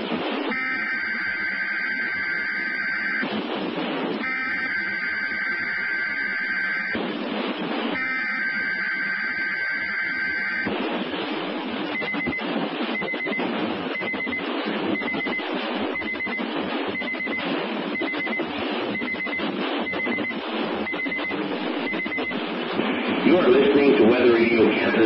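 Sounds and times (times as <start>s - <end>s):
steady radio hiss: 0.0s - 25.0s
high rapidly pulsed beep: 0.5s - 3.3s, 4.2s - 7.0s, 8.0s - 10.8s, 11.9s - 22.5s.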